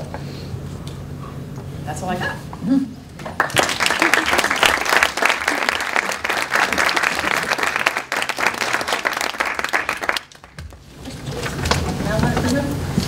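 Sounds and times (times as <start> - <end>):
audience applauding: 3.2 - 10.9.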